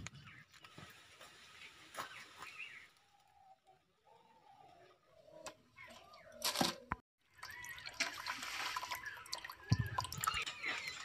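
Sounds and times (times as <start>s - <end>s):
water splashing in bowl: 7.3s - 10.5s.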